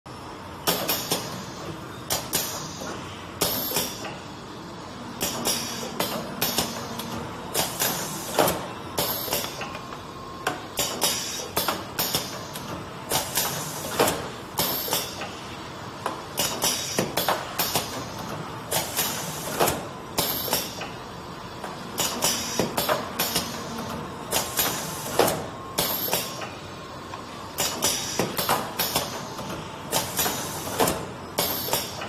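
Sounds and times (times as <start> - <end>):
packaging machine running: 27.6 - 32.0.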